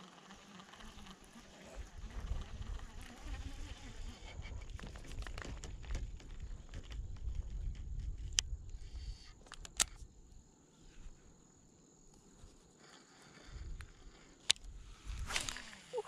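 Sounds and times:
microphone handling rustling: 4.2s - 8.6s
sharp clicks: 4.8s - 10.0s.

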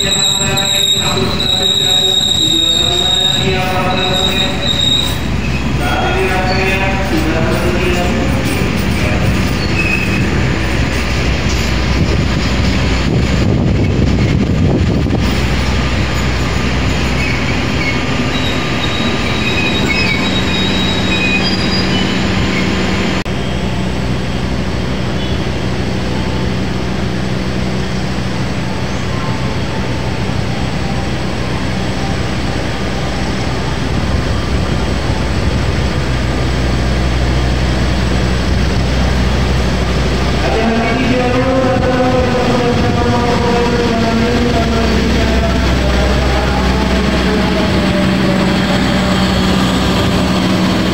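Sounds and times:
low train hum: 0.0s - 50.9s
train wheels rumbling on rails: 0.0s - 50.9s.

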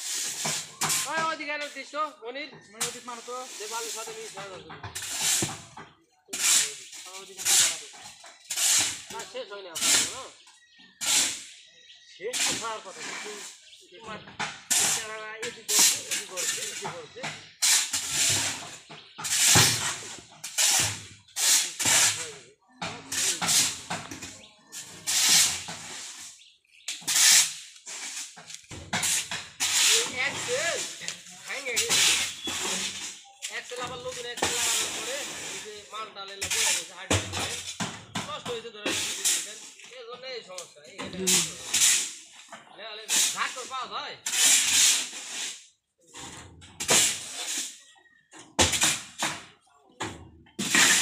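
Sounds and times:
shovels scraping sand on steel: 0.0s - 2.1s, 2.8s - 40.0s, 41.2s - 49.4s, 50.6s - 51.0s
sand hissing as it slides: 2.9s - 4.4s, 25.1s - 26.4s, 27.1s - 28.4s, 29.6s - 33.0s, 34.6s - 35.8s, 44.3s - 45.7s.

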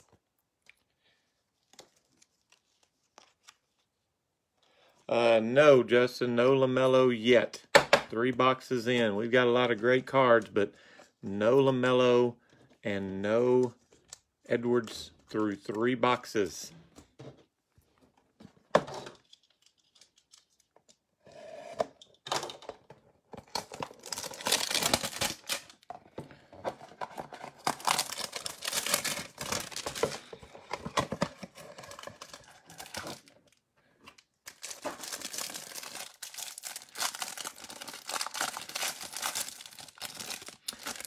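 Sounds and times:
plastic wrapper crinkling: 23.6s - 25.9s, 27.0s - 41.0s.

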